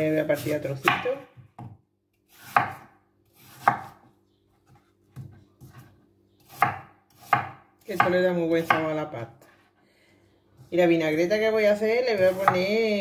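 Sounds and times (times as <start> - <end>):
knife slicing apple: 0.0 - 1.3, 2.3 - 4.1, 5.2 - 9.0, 12.1 - 13.0.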